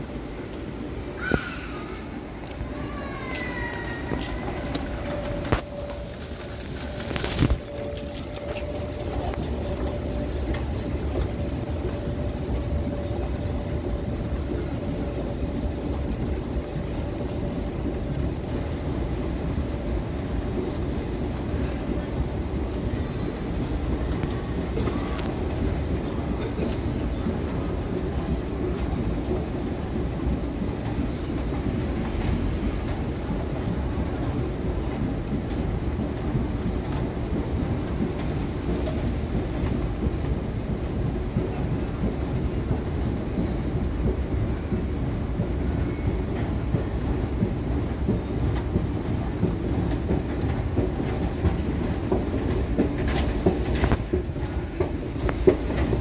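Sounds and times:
escalator rumbling: 0:00.0 - 0:14.1.

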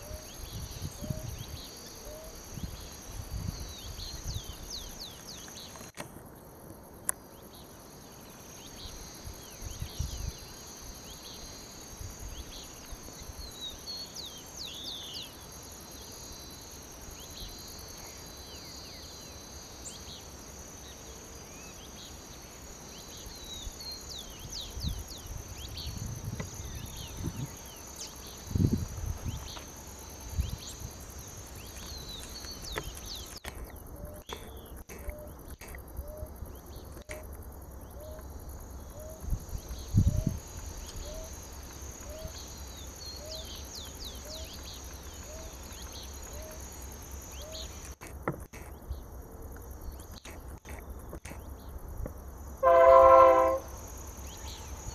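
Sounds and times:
bird chirps: 0:31.6 - 0:37.2, 0:42.0 - 0:46.6.

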